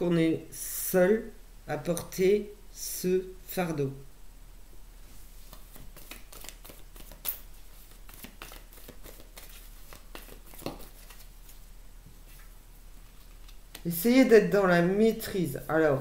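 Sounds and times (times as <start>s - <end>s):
cards being shuffled: 5.4s - 11.6s, 12.2s - 14.0s.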